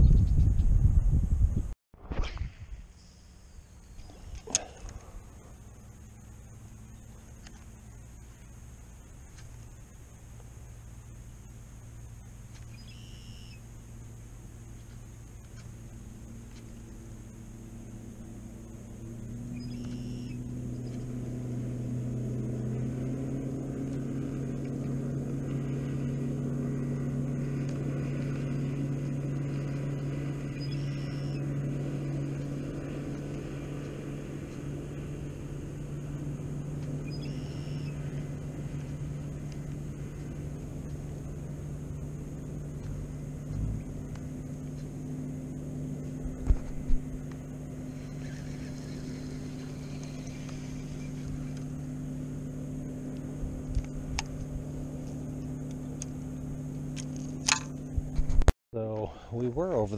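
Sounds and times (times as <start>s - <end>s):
engine humming: 0.0s - 59.9s
bird calling: 3.0s - 8.5s, 12.5s - 13.8s, 18.6s - 21.2s, 27.6s - 35.6s, 36.8s - 42.1s, 47.6s - 53.1s.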